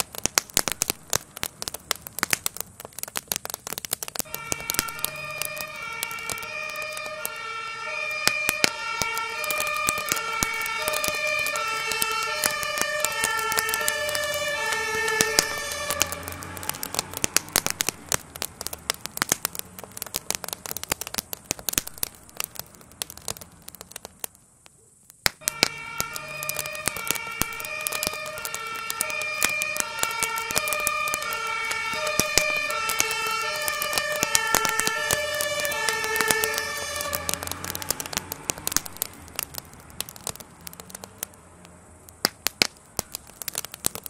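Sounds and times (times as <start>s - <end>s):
fire crackling and popping: 0.0s - 44.0s
two-tone siren: 4.2s - 17.0s, 25.4s - 38.2s.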